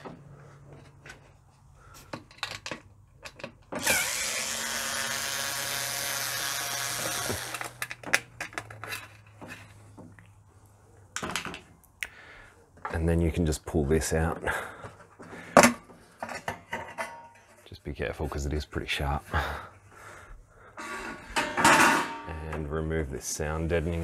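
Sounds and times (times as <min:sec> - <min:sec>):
electric screwdriver whining: 0:03.8 - 0:07.9.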